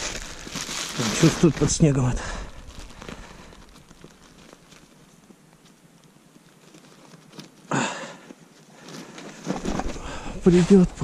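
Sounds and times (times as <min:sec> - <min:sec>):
loud snow crunch: 0:00.0 - 0:04.7
rustling in snow: 0:00.0 - 0:11.0.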